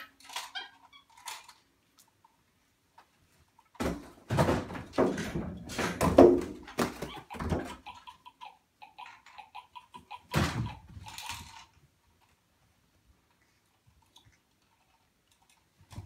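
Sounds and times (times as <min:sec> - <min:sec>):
objects knocking and thumping: 0:03.8 - 0:07.9, 0:10.2 - 0:11.8.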